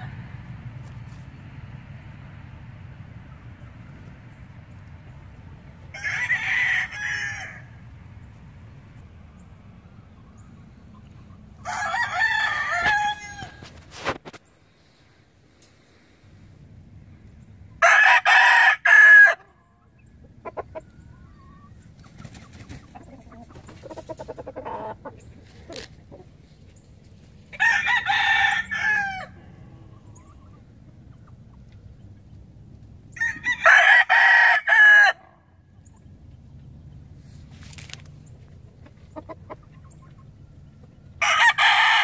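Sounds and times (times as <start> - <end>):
rooster crowing: 5.9 - 7.8, 11.6 - 13.7, 17.8 - 19.5, 27.5 - 30.0, 33.1 - 35.3, 41.2 - 42.0
rooster clucking: 18.0 - 26.7, 38.6 - 42.0.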